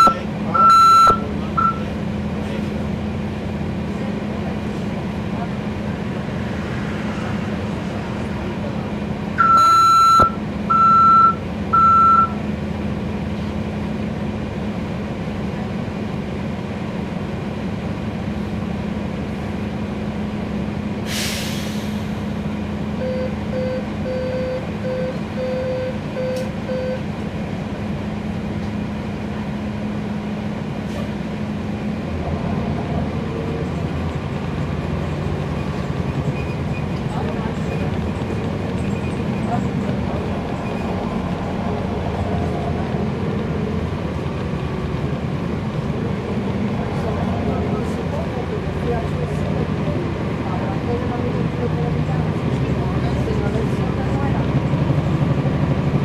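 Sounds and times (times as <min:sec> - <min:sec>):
loud electronic beeps: 0:00.0 - 0:01.8, 0:09.4 - 0:12.4
quiet short beeps: 0:00.0 - 0:01.9, 0:23.0 - 0:27.0
bus diesel engine running: 0:00.0 - 0:56.0.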